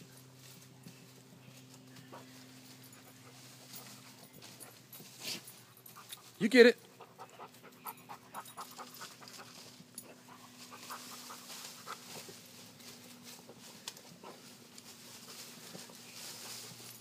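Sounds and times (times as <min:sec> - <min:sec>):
leaves and branches rustling: 0:00.0 - 0:06.5, 0:08.4 - 0:17.0
dog panting: 0:02.1 - 0:12.4.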